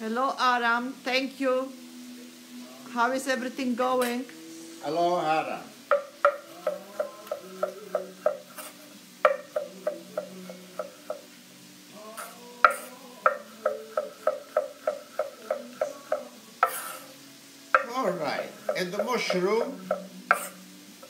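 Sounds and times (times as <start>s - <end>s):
knife knocking on wooden board: 5.9s - 8.5s, 9.3s - 11.2s, 12.6s - 16.8s.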